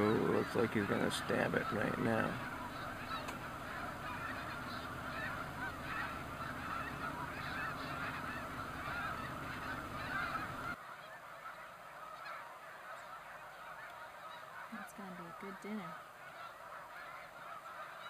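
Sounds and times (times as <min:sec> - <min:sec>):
geese honking: 0:00.0 - 0:18.0.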